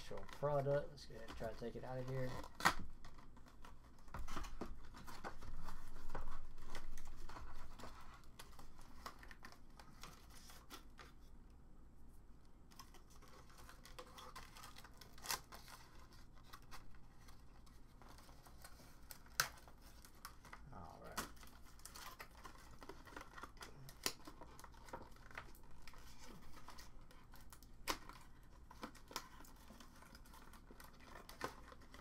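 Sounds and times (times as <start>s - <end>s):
packaging clicks and rustles: 0.0s - 11.2s, 12.7s - 32.0s.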